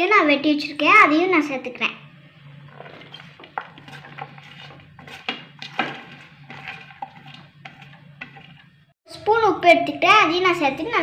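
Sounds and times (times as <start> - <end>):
food brushed into metal bowl: 2.8 - 8.7.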